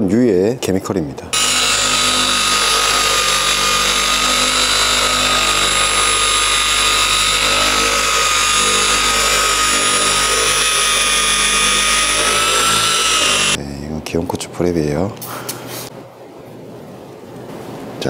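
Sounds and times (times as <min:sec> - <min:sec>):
polisher motor whine: 0:01.4 - 0:13.6.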